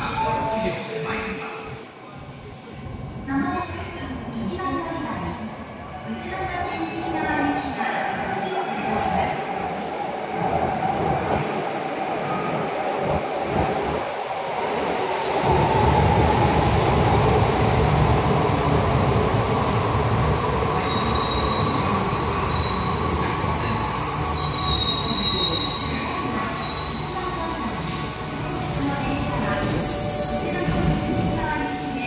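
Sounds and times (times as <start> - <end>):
subway train rumbling: 0.0 - 32.0
train wheels squealing: 22.5 - 27.0, 29.6 - 31.1.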